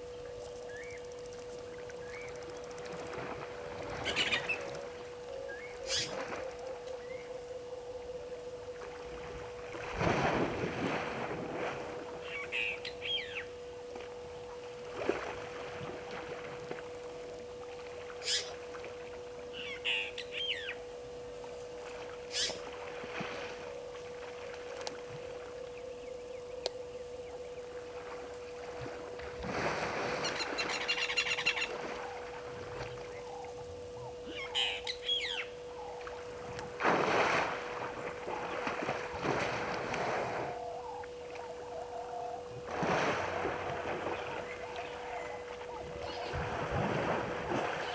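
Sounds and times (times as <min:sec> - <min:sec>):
steady electrical hum: 0:00.0 - 0:47.9
birds calling: 0:04.0 - 0:07.6, 0:12.2 - 0:13.6, 0:18.2 - 0:18.6, 0:19.5 - 0:20.8, 0:22.3 - 0:22.7, 0:30.2 - 0:36.2, 0:43.6 - 0:46.6
elephant splashing water: 0:36.8 - 0:40.5, 0:42.7 - 0:45.2.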